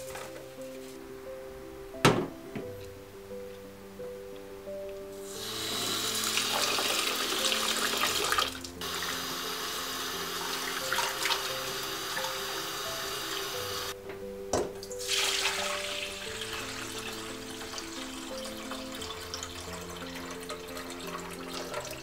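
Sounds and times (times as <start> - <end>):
soft background music: 0.0 - 22.0
water running into pot: 5.2 - 13.9, 15.0 - 22.0
water poured into metal bowl: 5.3 - 9.2, 10.3 - 13.1, 15.0 - 22.0.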